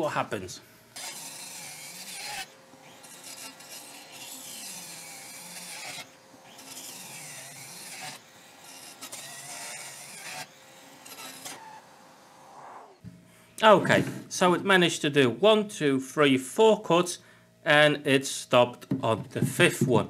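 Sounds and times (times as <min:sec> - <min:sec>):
circular saw cutting wood: 0:00.9 - 0:13.0.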